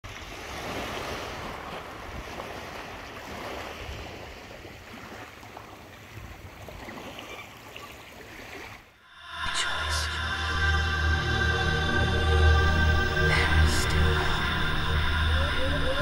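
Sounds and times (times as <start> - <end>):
small waves washing on shore: 0.0 - 10.1.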